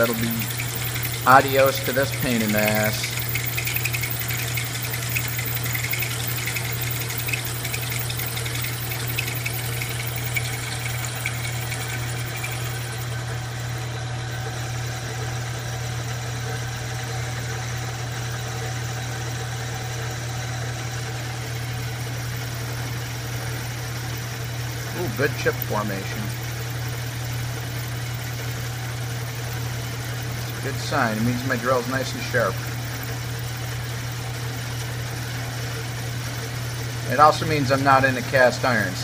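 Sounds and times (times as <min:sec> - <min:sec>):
drill cutting steel: 0:00.0 - 0:13.4
milling machine motor hum: 0:00.0 - 0:18.7, 0:20.7 - 0:39.0.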